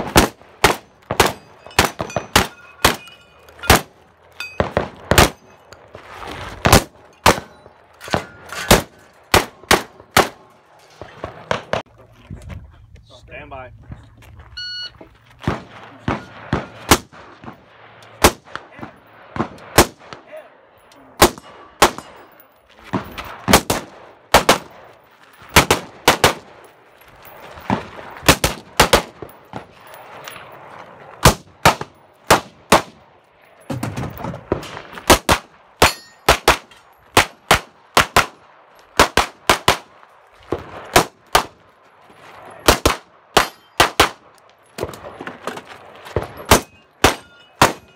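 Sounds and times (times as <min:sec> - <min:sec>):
bullets ringing on steel targets: 0:00.7 - 0:05.8, 0:20.8 - 0:22.5, 0:35.8 - 0:37.2, 0:43.4 - 0:44.0, 0:46.2 - 0:47.9.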